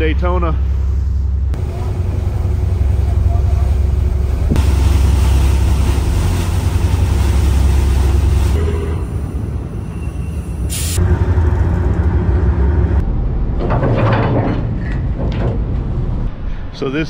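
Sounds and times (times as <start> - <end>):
tugboat engines humming: 0.0 - 13.2
rushing noise: 0.6 - 13.8.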